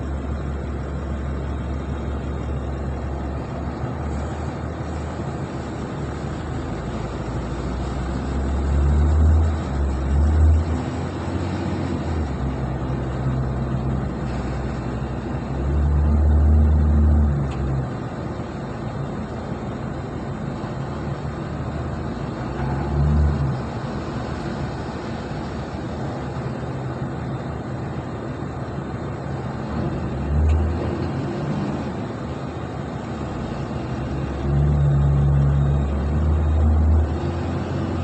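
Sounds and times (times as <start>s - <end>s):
diesel engine revving: 0.0s - 38.0s.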